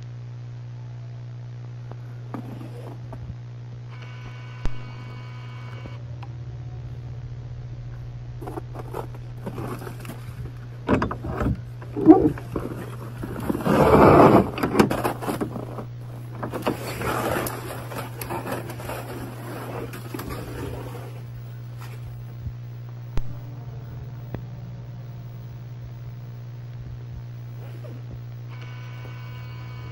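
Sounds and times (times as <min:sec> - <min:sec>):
steady low hum: 0:00.0 - 0:29.9
animal-like growls: 0:11.9 - 0:14.6.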